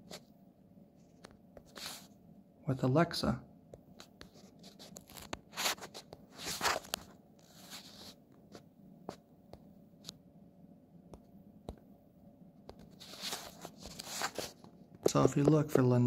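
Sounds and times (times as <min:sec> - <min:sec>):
short rustles: 0:12.9 - 0:14.6.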